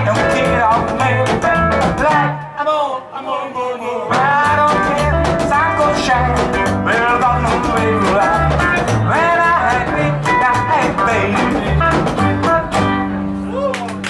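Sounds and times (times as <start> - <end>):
rockabilly band playing: 0.0 - 2.6, 4.1 - 14.0
electric guitar lead line: 4.1 - 13.6
upright bass pulse: 4.2 - 13.3.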